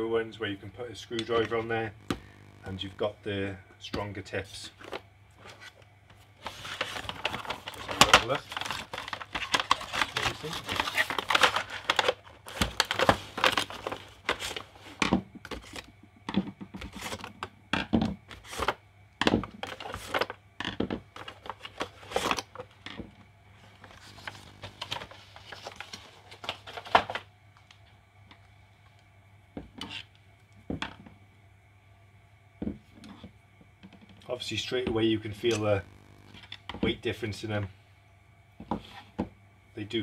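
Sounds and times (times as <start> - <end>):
packaging rustling and crinkling: 6.4 - 15.0, 23.6 - 27.2.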